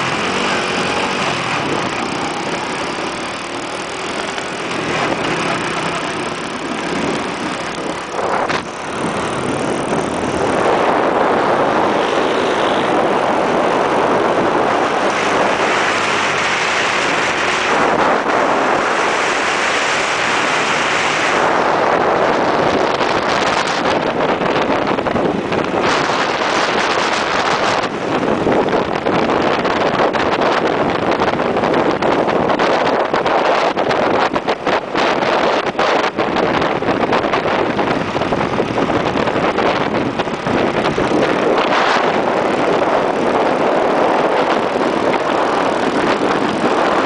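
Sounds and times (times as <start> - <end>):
small motorbike engine running: 0.0 - 13.1
wind rushing over microphone: 0.0 - 47.0.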